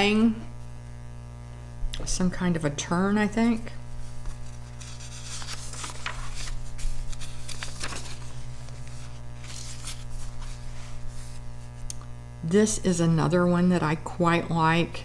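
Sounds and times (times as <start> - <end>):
steady electrical hum: 0.0 - 15.0
paper page rustling: 4.0 - 11.8.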